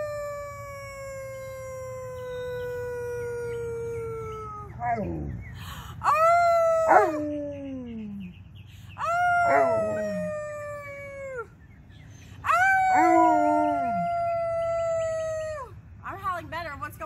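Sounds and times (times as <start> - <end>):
dog howling: 6.0 - 8.3, 9.0 - 11.5, 12.4 - 15.7
person howling: 9.0 - 11.5, 12.4 - 15.7.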